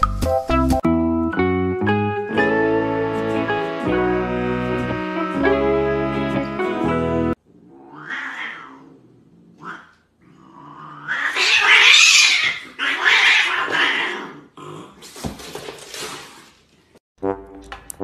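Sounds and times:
brass tune: 0:01.8 - 0:07.4, 0:17.2 - 0:18.0
cats fighting with harsh cries: 0:07.4 - 0:15.3.

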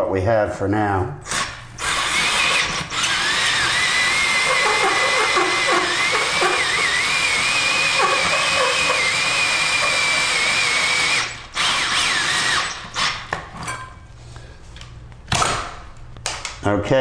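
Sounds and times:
cordless drill with hole saw: 0:01.3 - 0:13.3.

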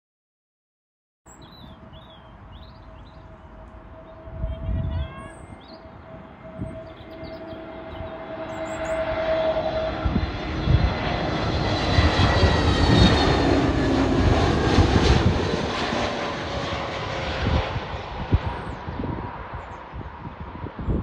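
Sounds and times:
jet airliner passing overhead: 0:01.4 - 0:21.0.

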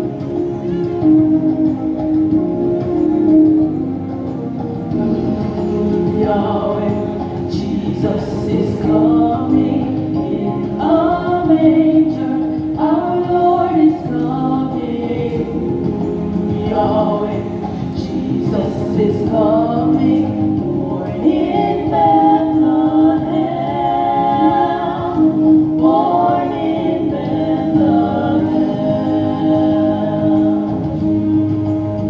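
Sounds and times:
held accompaniment chords: 0:00.0 - 0:32.0
group singing gospel song: 0:06.0 - 0:31.5.

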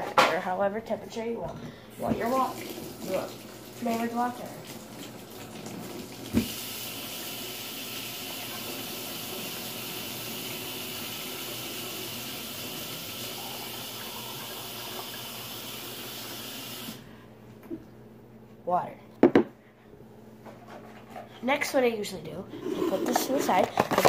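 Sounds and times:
tap water running into plastic cup: 0:02.1 - 0:17.0.

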